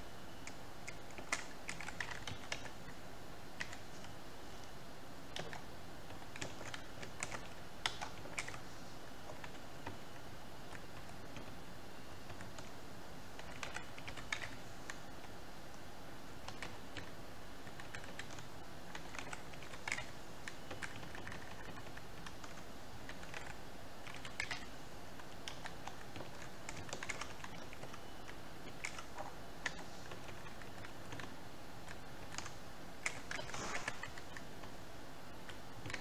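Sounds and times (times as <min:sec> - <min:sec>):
steady background hiss: 0:00.0 - 0:36.0
keyboard keystroke clicks: 0:05.3 - 0:08.6, 0:35.4 - 0:36.0.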